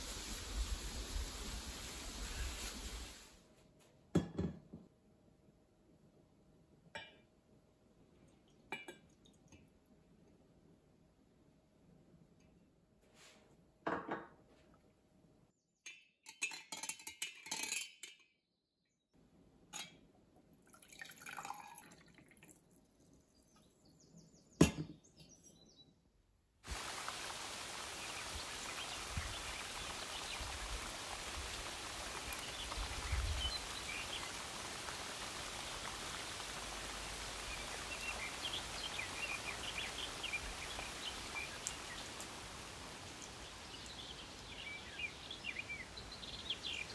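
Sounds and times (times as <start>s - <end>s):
forest ambience hiss: 0.0s - 3.4s, 26.6s - 46.9s
liquid pouring and dripping: 8.1s - 10.4s, 20.4s - 23.7s, 26.7s - 45.0s.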